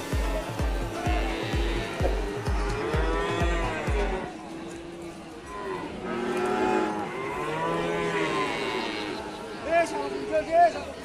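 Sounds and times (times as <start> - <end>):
music with thudding beat: 0.0 - 4.2
cattle mooing: 0.6 - 5.2, 5.8 - 9.4.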